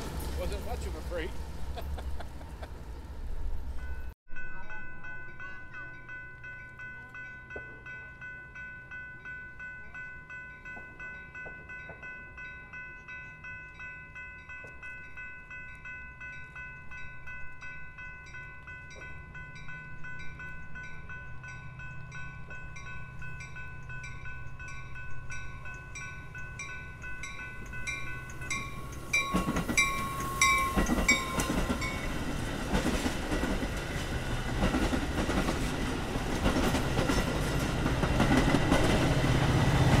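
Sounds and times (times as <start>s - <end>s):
crossing warning bell ringing: 0.0s - 40.0s
train rumble and wheel noise: 0.0s - 40.0s.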